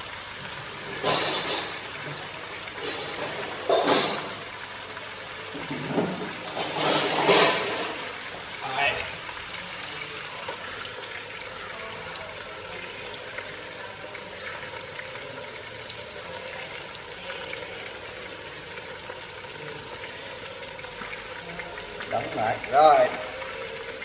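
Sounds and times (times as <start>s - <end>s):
fish sizzling in oil: 0.0s - 24.0s.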